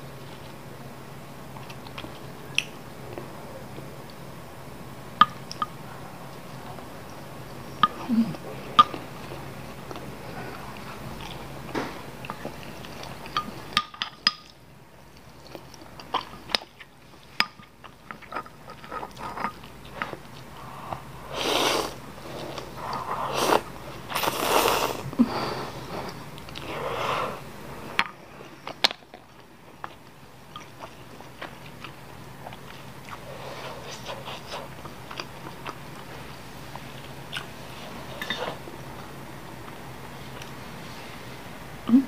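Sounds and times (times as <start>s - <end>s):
person chewing noodles: 14.5s - 37.6s
slurping noodles: 20.7s - 27.4s.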